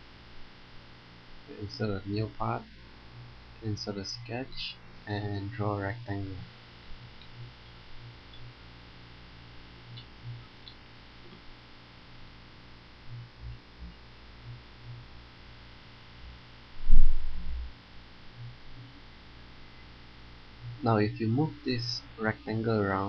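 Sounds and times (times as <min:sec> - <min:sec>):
low electrical hum: 0:00.0 - 0:23.0
low-pitched thump: 0:16.8 - 0:17.7.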